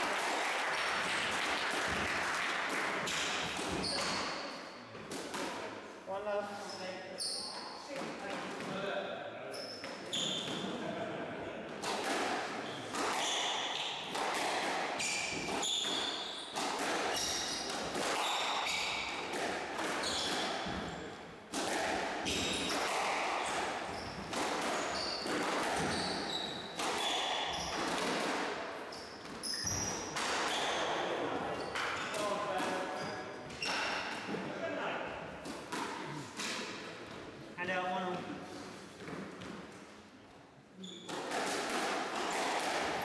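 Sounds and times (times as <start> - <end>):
shoes squeaking on wooden floor: 9.5 - 10.7, 19.9 - 21.2, 23.8 - 27.8, 28.9 - 34.4
squash ball hits: 11.8 - 28.6, 29.2 - 32.9, 41.1 - 43.0.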